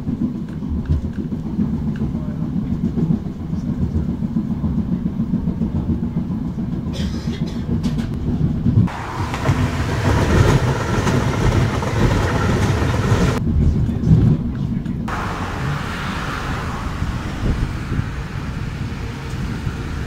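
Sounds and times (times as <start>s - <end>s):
train rumbling on track: 0.0s - 20.0s
passing train rushing hiss: 8.9s - 13.4s, 15.1s - 20.0s.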